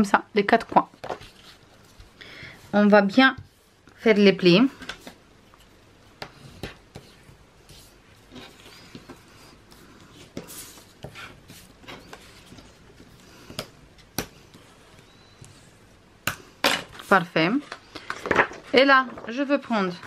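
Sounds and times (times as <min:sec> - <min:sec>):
paper rustling and scraping: 0:00.9 - 0:02.1, 0:16.9 - 0:20.0.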